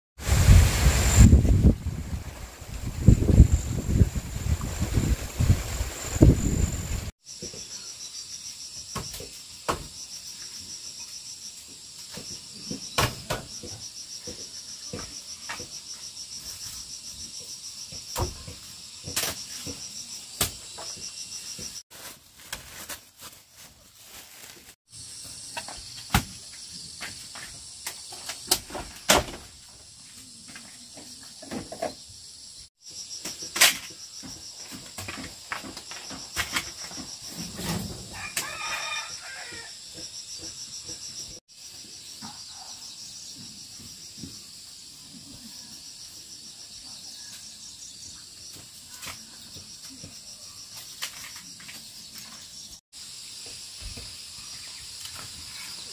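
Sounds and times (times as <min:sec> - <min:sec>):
crickets chirping: 0:00.2 - 0:21.8, 0:23.6 - 0:55.9
rooster crowing: 0:38.1 - 0:39.8.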